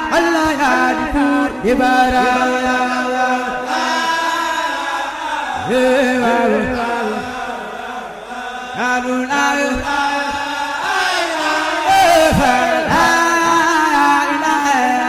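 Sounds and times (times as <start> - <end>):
chanted singing: 0.0 - 15.0.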